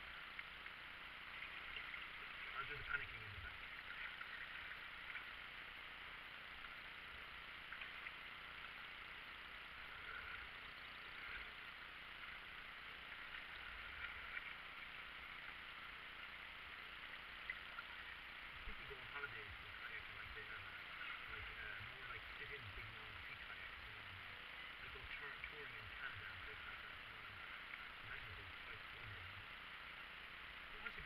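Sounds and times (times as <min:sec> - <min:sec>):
paddle splashes and drips: 0:00.0 - 0:29.4
river water rushing along hull: 0:00.0 - 0:31.0.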